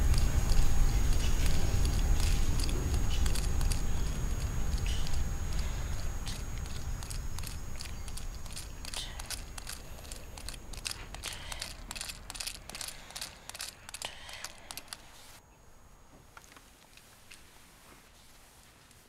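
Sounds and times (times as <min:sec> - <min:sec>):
low rumble: 0:00.0 - 0:14.0
soft irregular clicks and crackles: 0:00.0 - 0:15.4, 0:16.1 - 0:19.0.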